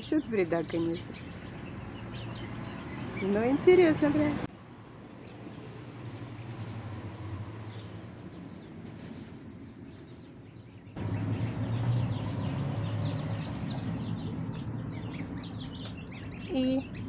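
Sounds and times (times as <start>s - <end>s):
goslings and ducklings peeping: 10.9s - 17.0s.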